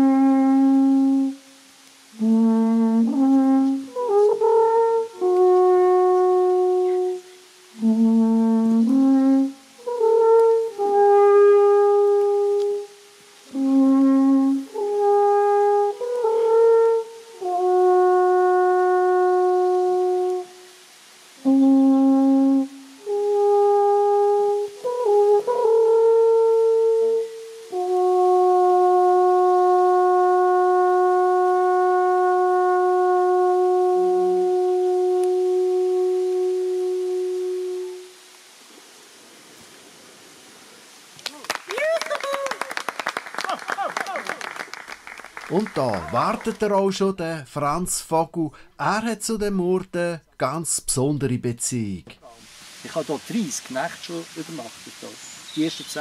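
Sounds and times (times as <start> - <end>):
alphorn playing slow tune: 2.1 - 20.7, 21.4 - 38.2.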